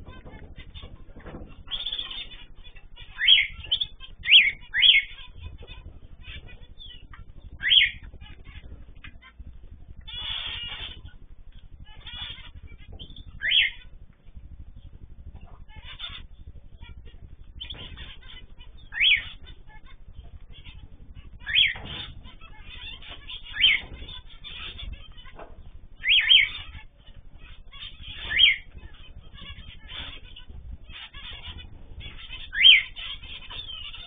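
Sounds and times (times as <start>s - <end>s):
small birds twittering: 0.0s - 34.0s
cockatiel whistled calls: 3.1s - 5.2s, 6.8s - 8.0s, 10.1s - 11.0s, 12.0s - 13.8s, 18.8s - 19.4s, 21.4s - 22.1s, 22.9s - 24.9s, 26.0s - 26.7s, 27.9s - 28.7s, 30.9s - 34.0s.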